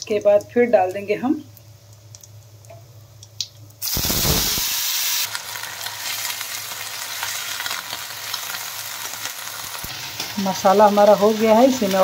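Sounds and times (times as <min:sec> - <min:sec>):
vegetables sizzling in hot oil: 0:03.8 - 0:12.0.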